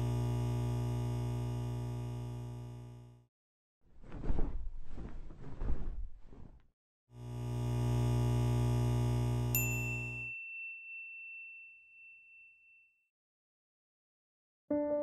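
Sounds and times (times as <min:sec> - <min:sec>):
bright bell-like ding: 0:09.6 - 0:13.0.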